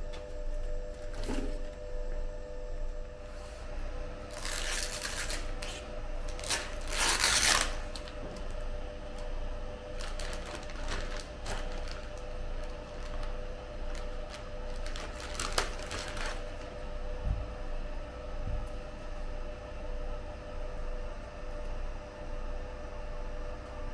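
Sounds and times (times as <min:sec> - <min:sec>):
steady hum: 0:00.0 - 0:23.9
plastic bags crinkling: 0:04.3 - 0:09.3, 0:09.9 - 0:16.7.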